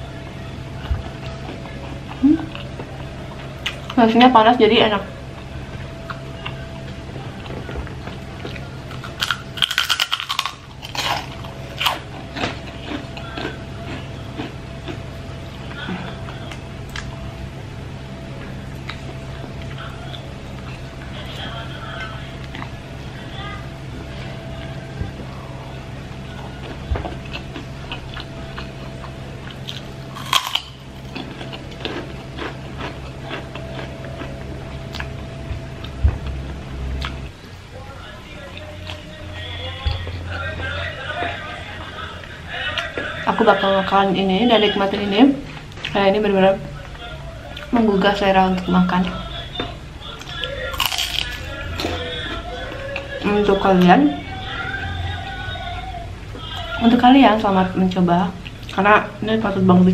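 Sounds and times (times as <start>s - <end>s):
low hum: 0.0s - 59.9s
cracker crunching: 5.7s - 17.2s, 26.1s - 39.2s, 49.4s - 53.2s.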